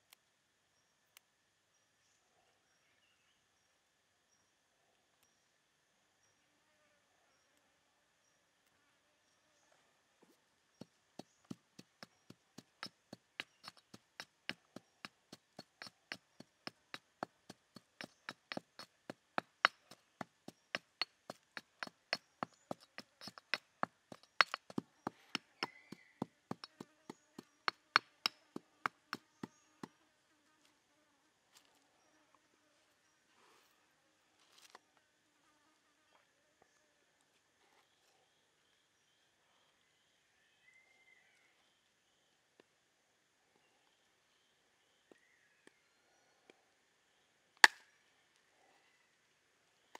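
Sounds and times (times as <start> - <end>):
pestle pounding in stone mortar: 11.4 - 29.9.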